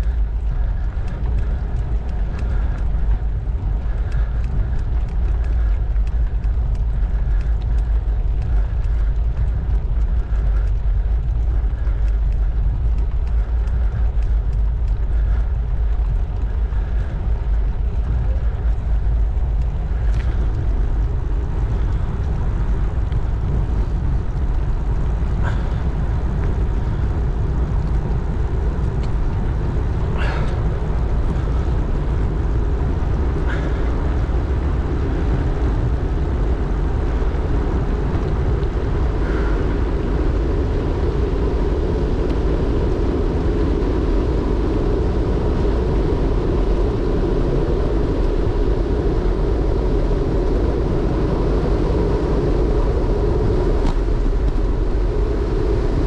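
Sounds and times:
faint ticks: 0.0s - 30.7s
tyre noise on rough road: 0.0s - 56.0s
wind rush on microphone: 0.0s - 56.0s.

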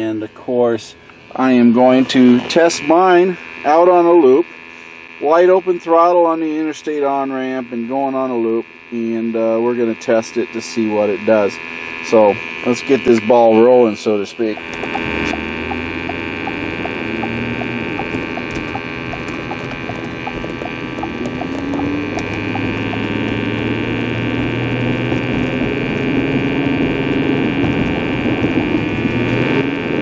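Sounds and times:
steady high whine: 0.0s - 30.0s
rapid regular ticking: 14.4s - 29.3s
car engine accelerating: 14.4s - 30.0s.

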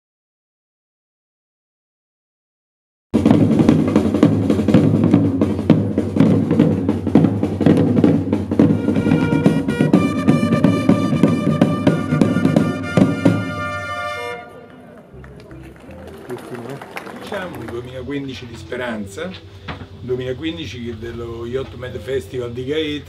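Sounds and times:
side drums marching rhythm: 3.2s - 14.4s, 15.5s - 20.0s
trumpets holding notes: 8.5s - 19.5s.

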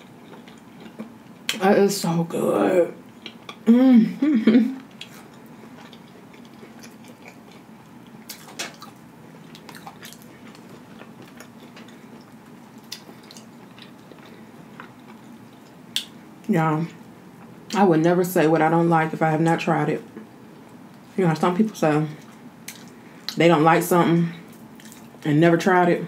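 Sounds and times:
person chewing food: 0.0s - 1.6s, 3.0s - 3.7s, 4.8s - 16.2s, 22.2s - 23.4s, 24.5s - 25.2s
faint steady hum: 0.0s - 26.0s.

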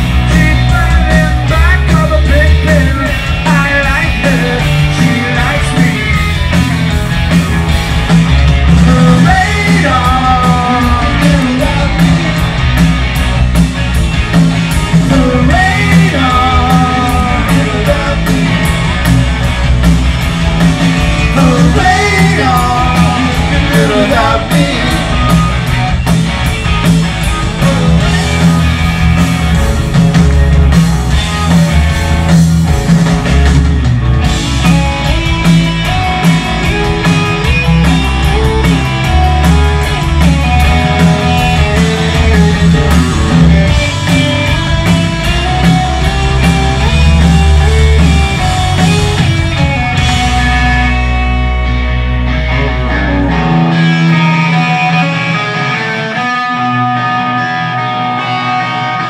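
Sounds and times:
rock band playing live: 0.0s - 59.0s
man singing lead vocal: 0.1s - 6.3s, 8.8s - 12.3s, 15.0s - 18.6s, 21.2s - 25.4s, 27.5s - 28.3s.

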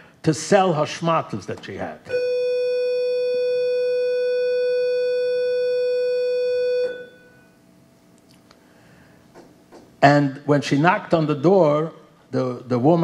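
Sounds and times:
electronic buzzer tone: 2.1s - 7.5s.

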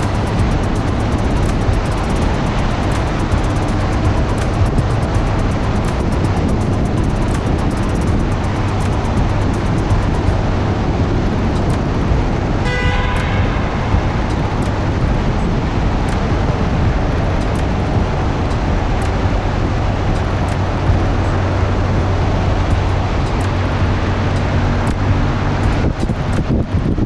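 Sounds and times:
road and wind noise in tunnel: 0.0s - 27.0s
short horn honk: 12.7s - 14.2s.

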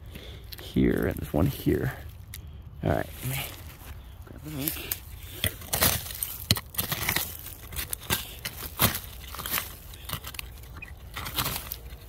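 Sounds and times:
digging tool scraping leaf litter: 3.1s - 12.0s.

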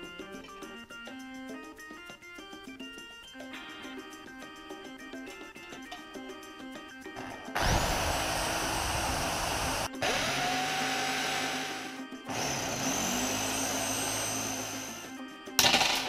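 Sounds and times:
electric drill whining: 7.2s - 15.2s.

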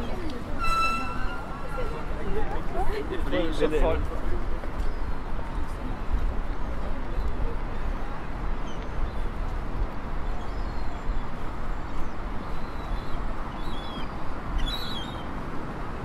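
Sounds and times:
city noise rumble: 0.0s - 16.0s
high bird calls: 0.6s - 2.0s, 12.4s - 15.3s.

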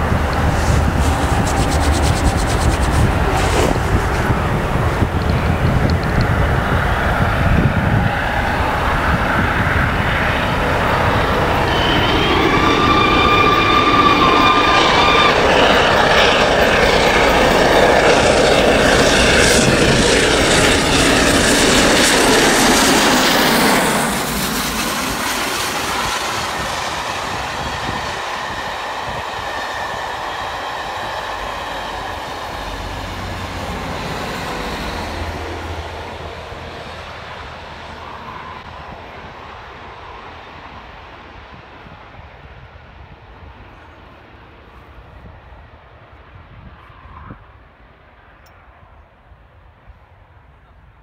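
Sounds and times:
steam locomotive working: 0.0s - 39.4s
train coaches rolling past: 0.0s - 42.1s.

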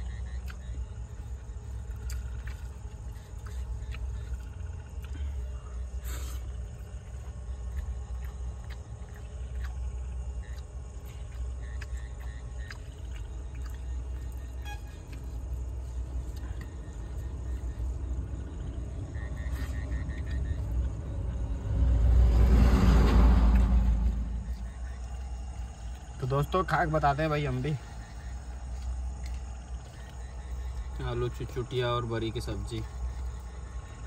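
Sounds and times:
road traffic rumble: 0.0s - 34.0s
vehicle passing close by: 17.9s - 26.0s.

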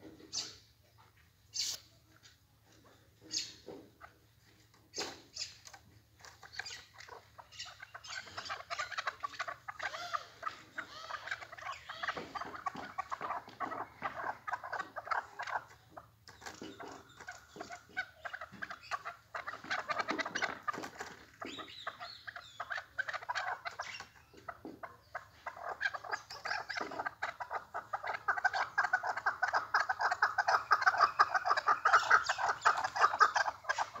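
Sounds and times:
partridges clucking: 1.5s - 34.0s.

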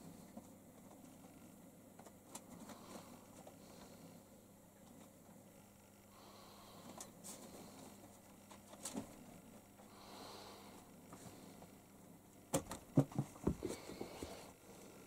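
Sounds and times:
faint room hum: 0.0s - 15.0s
knocks and rustles of handling: 12.5s - 14.5s.

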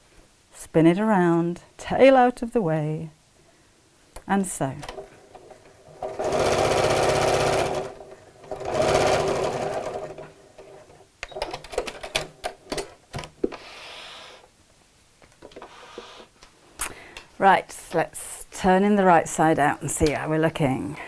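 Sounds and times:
sewing machine stitching: 5.8s - 11.9s.

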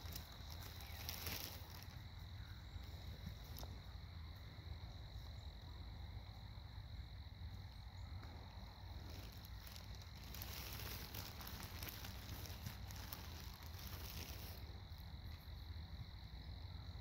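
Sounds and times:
hissing rustle with ticks: 0.0s - 4.5s, 7.4s - 15.9s
low wind rumble: 0.0s - 17.0s.

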